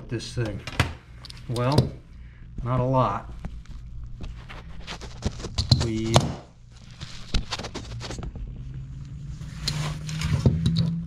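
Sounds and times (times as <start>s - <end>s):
steady low hum: 0.0s - 11.0s
metal clinks and scrapes: 9.4s - 11.0s.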